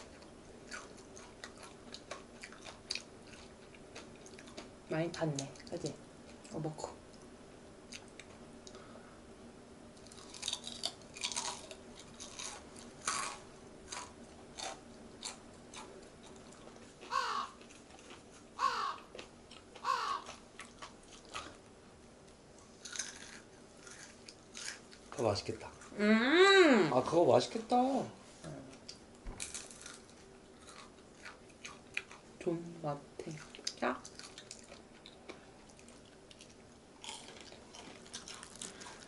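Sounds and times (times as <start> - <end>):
crunchy chewing of fried chicken: 0.0 - 4.8, 10.0 - 21.8, 22.6 - 25.9, 28.8 - 32.4, 33.3 - 39.0
short falling calls: 17.1 - 17.6, 18.6 - 19.1, 19.8 - 20.3.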